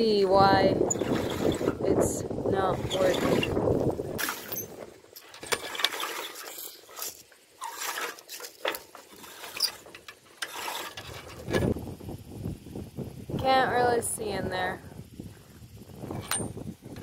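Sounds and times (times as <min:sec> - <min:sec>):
sailboat rigging clicking and knocking: 0:00.8 - 0:01.9, 0:02.6 - 0:11.8.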